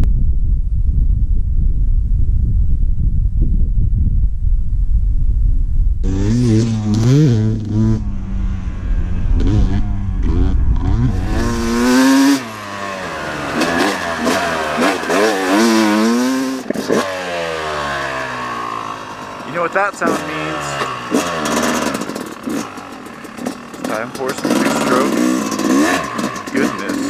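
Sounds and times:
wind rumbling on microphone: 0.0 - 12.6
dirt bike engine revving: 6.0 - 27.0.

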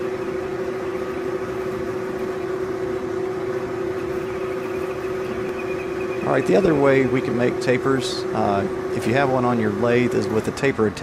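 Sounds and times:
lathe tool cutting metal: 0.0 - 11.0
metal lathe whining: 0.0 - 11.0.

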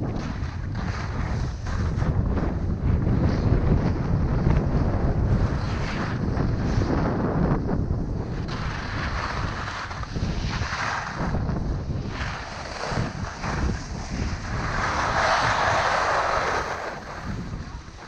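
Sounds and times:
skis scraping over snow: 0.0 - 18.0
wind buffeting microphone: 0.0 - 18.0.

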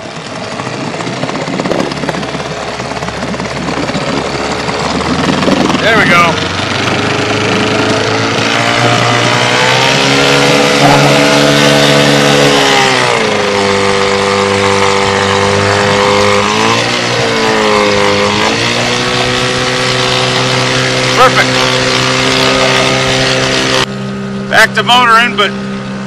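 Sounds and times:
outboard motor running: 0.0 - 26.0.

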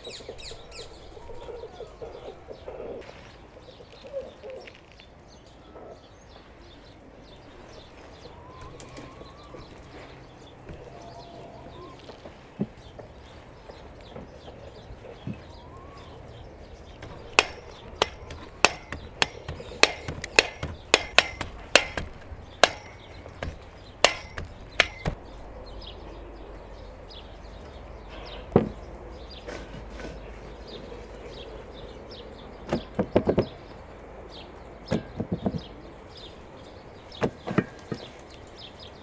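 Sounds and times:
faint birdsong: 0.0 - 39.0.

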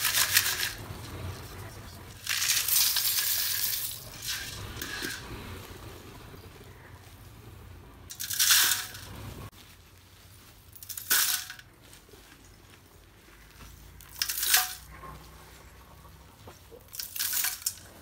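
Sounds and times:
clay pieces clattering in metal sieve: 0.0 - 5.6, 8.1 - 9.5, 10.8 - 11.7, 14.0 - 15.2, 16.9 - 18.0.

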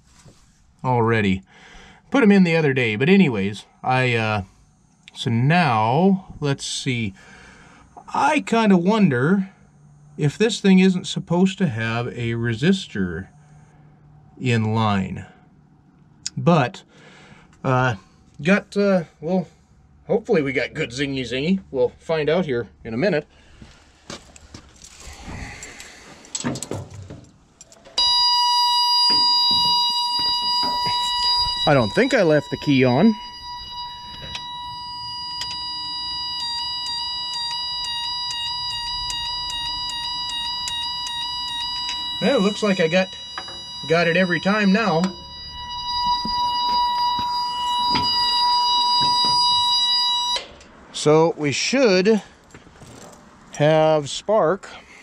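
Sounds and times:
high-pitched warning buzzer: 28.0 - 50.5.

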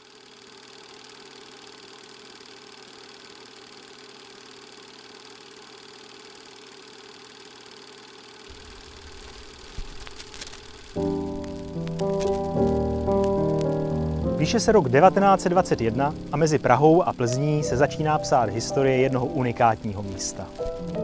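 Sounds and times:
record player whirring hum: 0.0 - 21.0
low stylus rumble: 8.5 - 21.0
vinyl crackles: 8.5 - 21.0.

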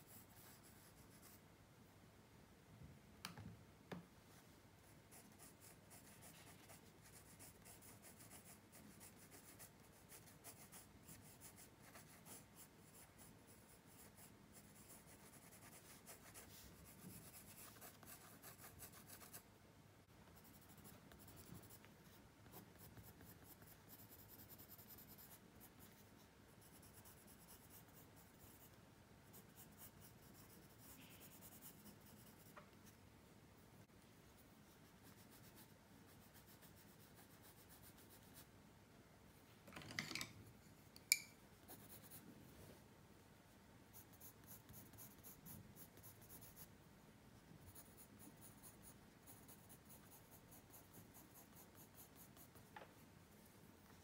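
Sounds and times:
pencil scratching on paper: 5.1 - 19.4, 20.4 - 33.0, 34.3 - 38.5, 43.9 - 46.7, 47.6 - 52.7.

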